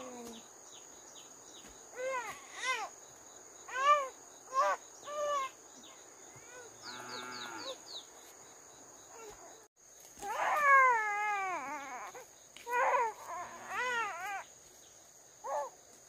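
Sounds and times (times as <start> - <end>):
baby crying: 3.7 - 5.5, 10.2 - 14.4.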